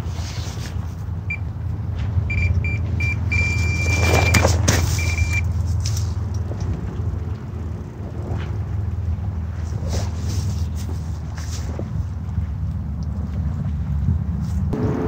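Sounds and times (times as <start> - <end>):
electronic bite alarm beeping: 2.3 - 5.4.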